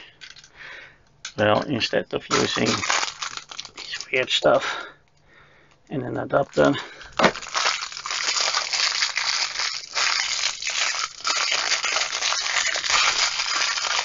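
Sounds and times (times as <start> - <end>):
plastic bag crinkling: 1.4 - 4.4, 6.4 - 14.0.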